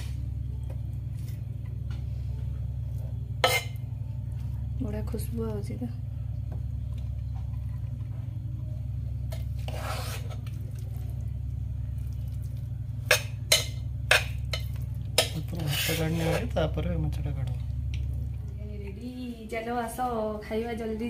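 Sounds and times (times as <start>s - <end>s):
low steady hum: 0.0s - 21.0s
spoon scraping rice in pan: 3.4s - 3.8s, 9.3s - 10.8s, 13.0s - 16.6s.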